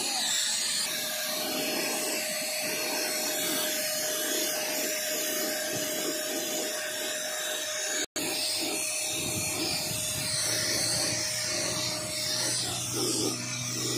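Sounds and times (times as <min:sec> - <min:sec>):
hiss of sprayed paint: 0:00.0 - 0:13.9
paint spray gun motor whine: 0:00.0 - 0:13.9.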